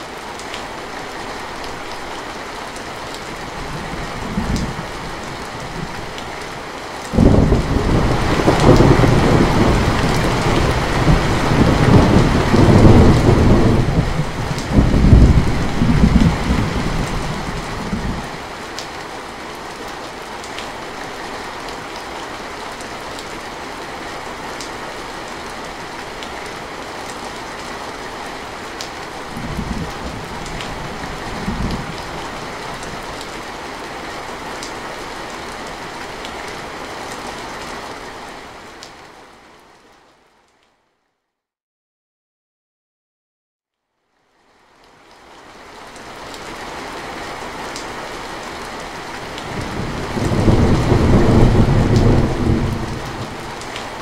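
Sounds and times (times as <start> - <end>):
heavy rain on a metal roof: 0.0 - 40.6, 44.0 - 54.0
rolling thunder: 7.2 - 18.3, 49.5 - 53.6.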